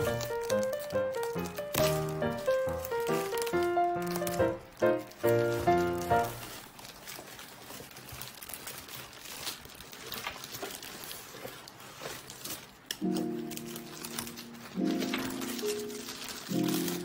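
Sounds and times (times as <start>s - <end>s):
background music: 0.0s - 6.4s
plastic packaging crinkling: 0.0s - 17.0s.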